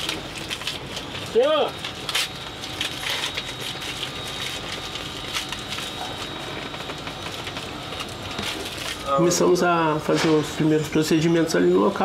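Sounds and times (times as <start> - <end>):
rustling and clicks of handling: 0.0 - 9.0.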